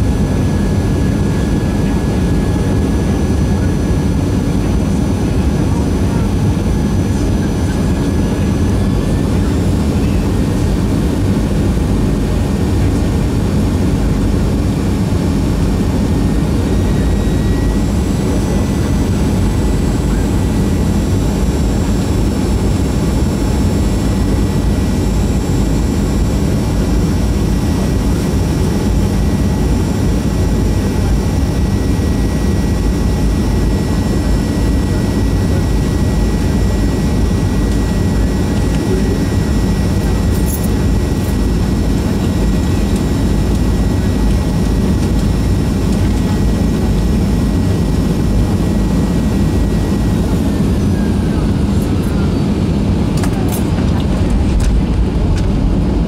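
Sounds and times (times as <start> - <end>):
jet engine and airflow roar: 0.0 - 56.0.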